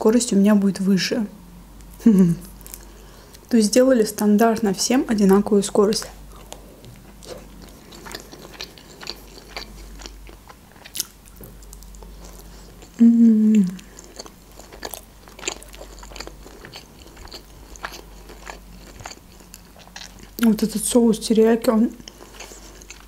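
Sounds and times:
person humming mmm: 0:02.0 - 0:02.5, 0:12.9 - 0:14.0
wet chewing mouth sounds: 0:06.0 - 0:20.5, 0:22.0 - 0:23.0.

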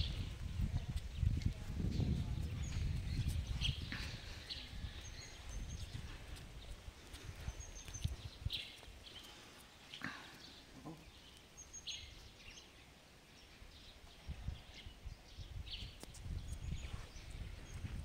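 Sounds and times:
low rumbles on microphone: 0:00.0 - 0:08.7, 0:14.2 - 0:18.0
birds chirping: 0:00.0 - 0:18.0.

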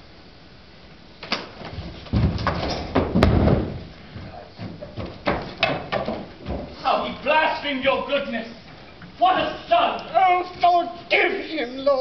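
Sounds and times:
knocks and heavy thumps: 0:01.3 - 0:06.8
door banging shut: 0:02.1 - 0:03.9.

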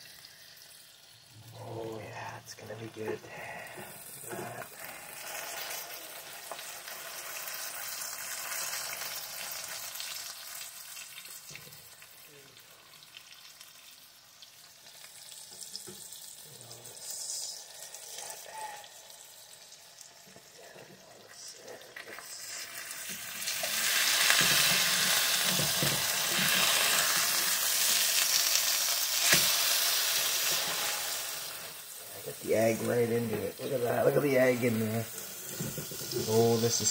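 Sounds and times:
food sizzling in a frying pan: 0:00.0 - 0:36.9
spatula working food: 0:20.8 - 0:36.9.

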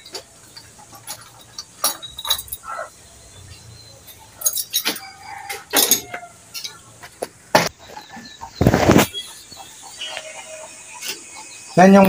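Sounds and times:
metallic clinks of tools: 0:00.0 - 0:02.8, 0:03.5 - 0:06.8.

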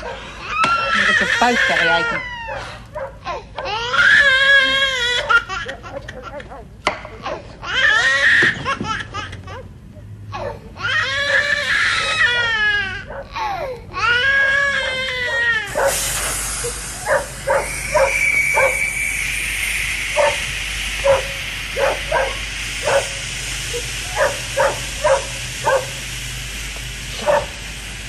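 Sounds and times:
dog barking: 0:00.0 - 0:01.0, 0:02.5 - 0:03.8, 0:10.4 - 0:10.7, 0:12.0 - 0:13.4, 0:14.4 - 0:16.0, 0:17.0 - 0:18.8, 0:20.2 - 0:20.4, 0:21.0 - 0:23.2, 0:24.1 - 0:26.0, 0:27.2 - 0:27.5
steady background hum: 0:00.0 - 0:28.0
baby crying: 0:00.4 - 0:02.6, 0:10.3 - 0:15.7.

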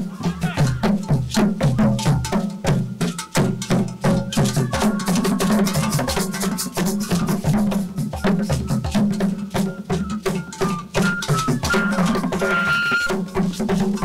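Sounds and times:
deep drum beats: 0:00.0 - 0:14.0.

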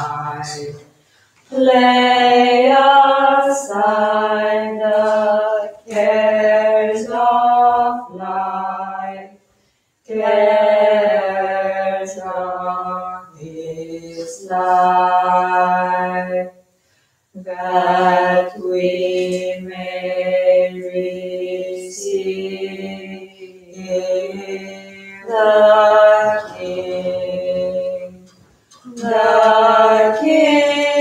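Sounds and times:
solo voice chanting: 0:00.0 - 0:09.4, 0:17.3 - 0:31.0.

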